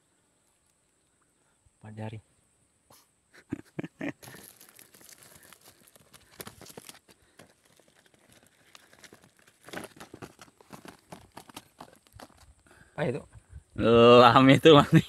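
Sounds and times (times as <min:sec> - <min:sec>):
cardboard and plastic rustling: 0:04.2 - 0:12.5.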